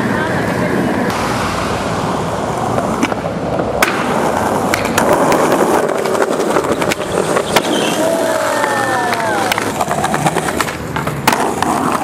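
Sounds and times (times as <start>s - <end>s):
skateboard wheels rolling: 0.0s - 12.0s
skateboard clacking on ground: 2.5s - 12.0s.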